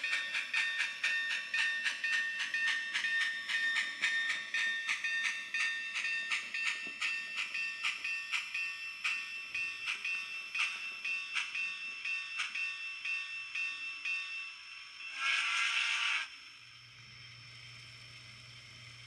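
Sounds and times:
steam locomotive exhaust chuffs: 15.0s - 16.3s.

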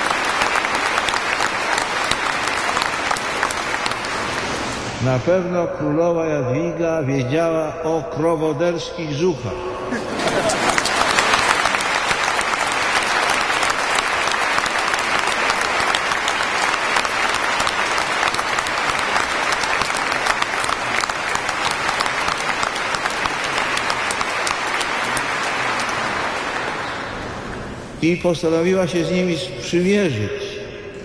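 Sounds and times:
crowd applause: 0.0s - 5.1s, 9.9s - 28.0s.

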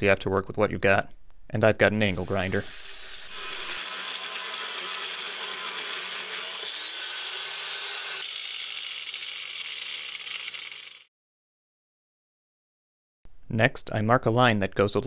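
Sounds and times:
angle grinder cutting steel: 2.2s - 11.1s.

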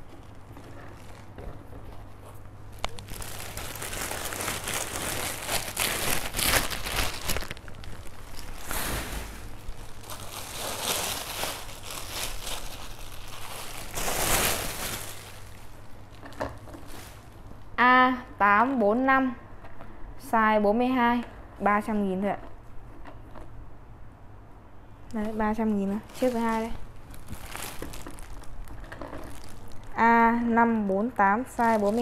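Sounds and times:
plastic bags crinkling: 0.0s - 1.9s, 2.6s - 17.6s, 25.4s - 30.3s, 31.4s - 32.0s.

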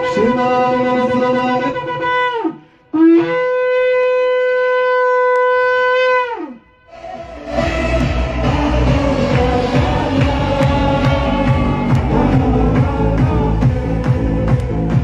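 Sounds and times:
shofar blasts: 0.0s - 12.6s.

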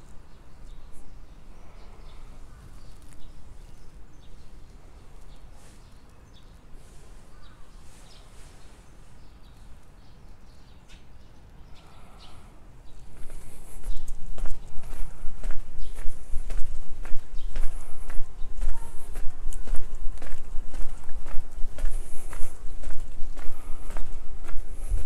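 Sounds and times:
faint bird chirps: 0.3s - 19.9s
light footsteps: 12.9s - 25.0s.

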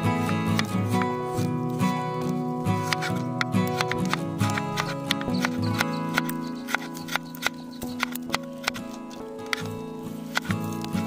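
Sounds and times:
plucked-string background music: 0.0s - 11.0s
knife chopping on wooden board: 2.8s - 9.7s.

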